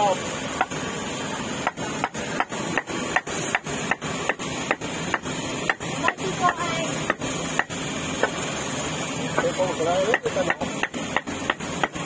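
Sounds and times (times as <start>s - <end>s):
cleaver chopping meat on wood: 1.6s - 6.2s, 10.1s - 12.0s.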